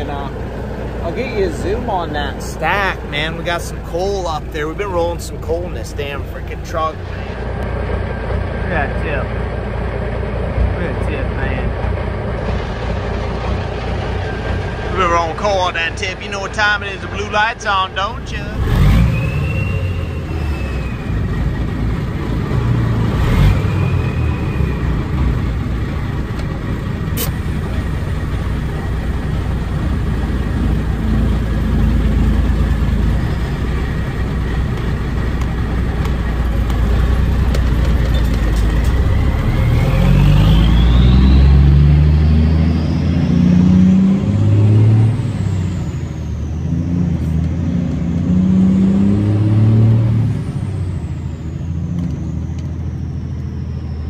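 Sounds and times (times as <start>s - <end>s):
diesel engine running under load: 0.0s - 54.0s
turbo whistle: 18.8s - 21.8s, 23.2s - 25.4s, 39.6s - 43.7s.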